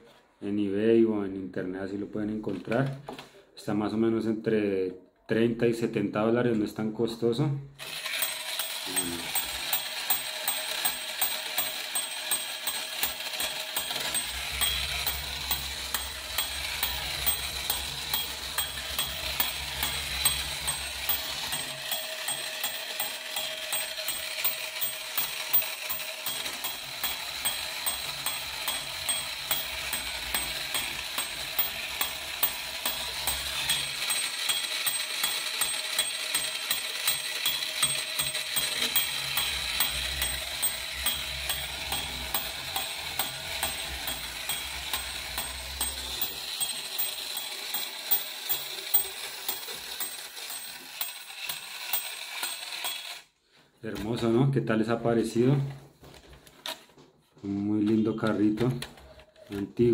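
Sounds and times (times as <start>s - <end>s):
gears clicking rapidly: 7.8s - 53.3s
small electric motor whirring: 7.8s - 53.3s.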